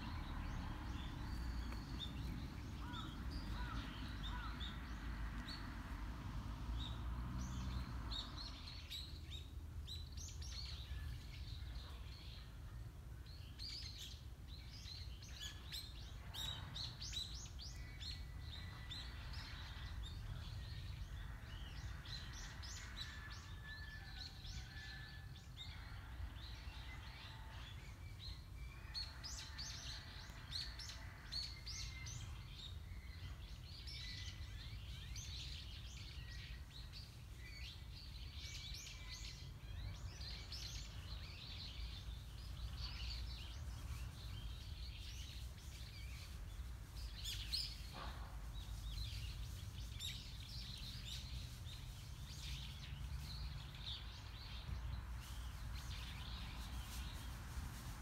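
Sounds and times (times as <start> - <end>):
small birds chirping: 26.8 - 58.0.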